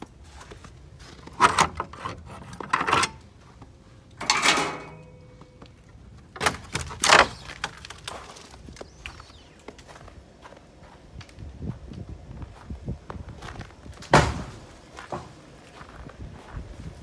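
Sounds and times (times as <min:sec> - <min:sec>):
footsteps crunching on snow: 0:00.0 - 0:01.3, 0:07.4 - 0:17.0.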